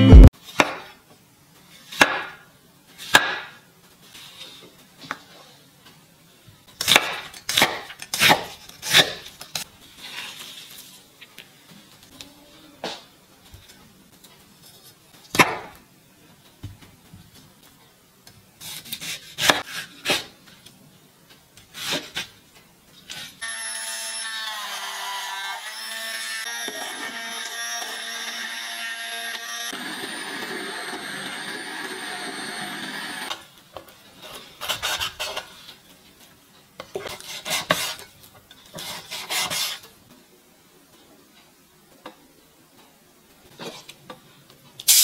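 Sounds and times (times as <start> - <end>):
electric hand blender running: 23.4 - 33.3.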